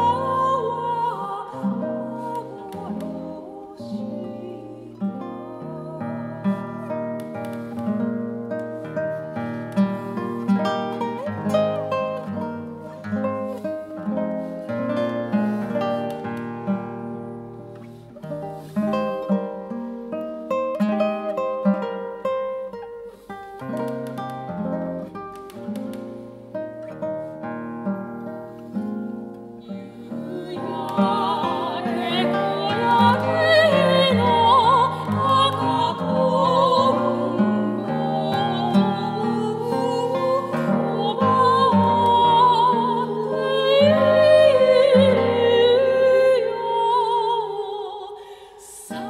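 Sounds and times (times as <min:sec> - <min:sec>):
soprano voice singing: 0:00.0 - 0:08.3, 0:29.6 - 0:49.0
nylon-string guitar playing: 0:00.0 - 0:47.8.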